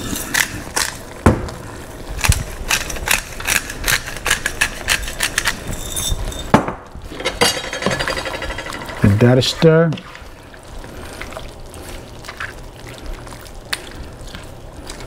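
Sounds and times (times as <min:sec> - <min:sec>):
metal utensil scraping frying pan: 0:07.1 - 0:09.7.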